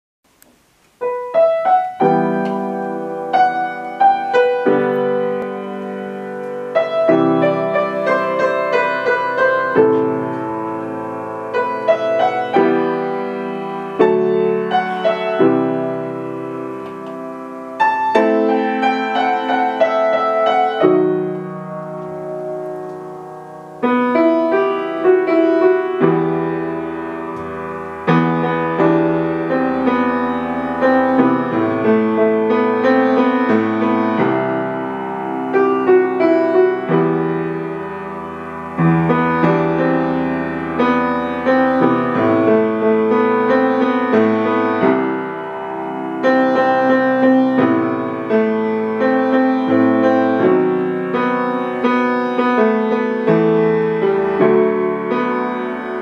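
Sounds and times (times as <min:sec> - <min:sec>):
piano chords ringing: 0:00.3 - 0:56.0
deep piano bass notes: 0:01.0 - 0:56.0.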